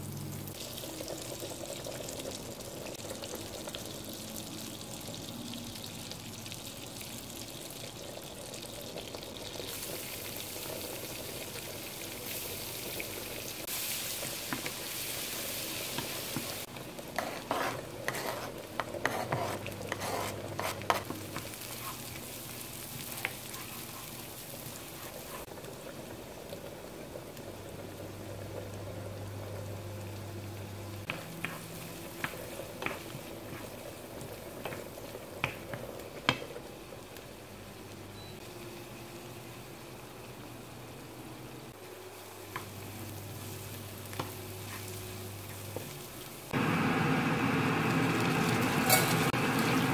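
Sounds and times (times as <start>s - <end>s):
food sizzling in frying pan: 0.0s - 49.9s
spatula scraping and tapping pan: 17.2s - 22.0s, 31.1s - 33.7s, 48.9s - 49.2s.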